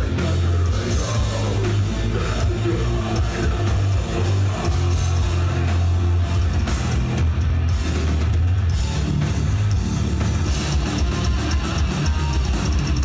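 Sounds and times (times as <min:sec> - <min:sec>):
heavy metal band playing: 0:00.0 - 0:13.0.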